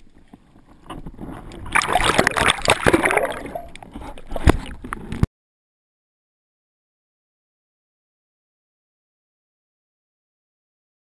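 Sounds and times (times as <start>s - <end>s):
underwater water noise with clicks: 0.0s - 5.3s.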